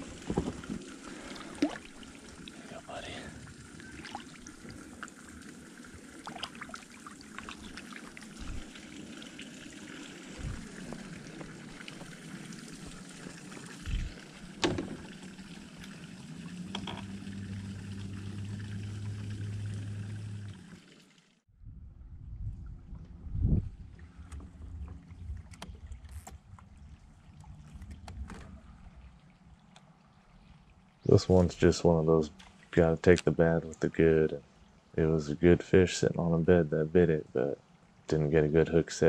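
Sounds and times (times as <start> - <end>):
water lapping around kayak: 0.0 - 20.7, 22.6 - 31.4
steady low hum: 7.0 - 20.7.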